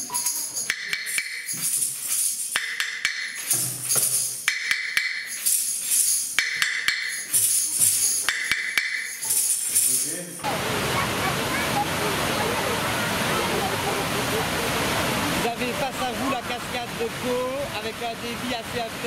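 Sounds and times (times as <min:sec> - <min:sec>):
sharp tambourine taps: 0:00.0 - 0:10.4
tambourines jingling: 0:00.0 - 0:10.4.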